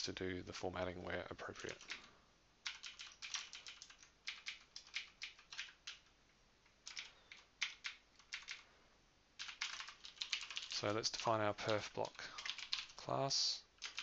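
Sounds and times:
computer keyboard typing: 1.6s - 6.1s, 6.8s - 8.7s, 9.4s - 13.0s, 13.8s - 14.0s.

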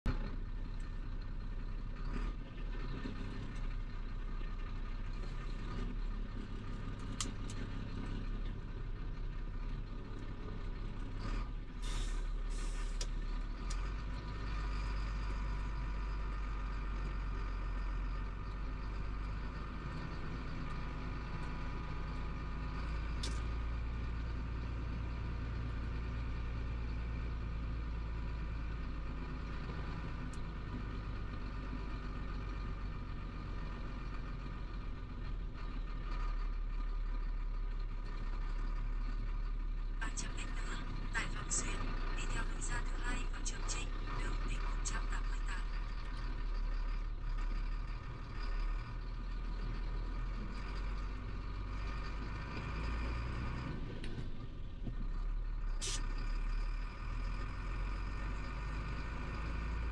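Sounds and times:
truck diesel engine running: 0.1s - 59.9s
short sharp hisses or clicks: 55.8s - 56.0s.

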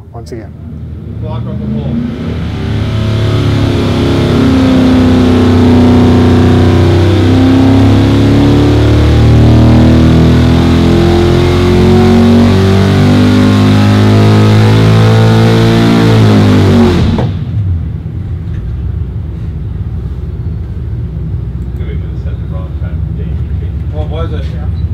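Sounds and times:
engine at full throttle: 0.7s - 17.9s.

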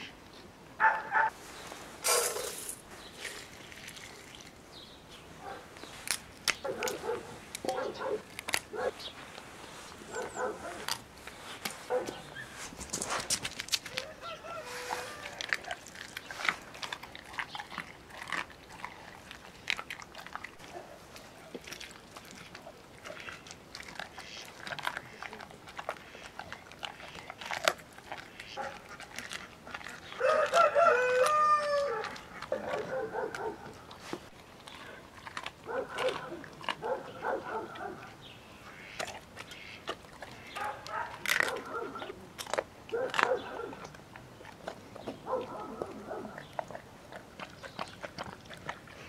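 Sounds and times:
dog chewing raw meat: 14.8s - 38.2s, 38.9s - 49.0s.

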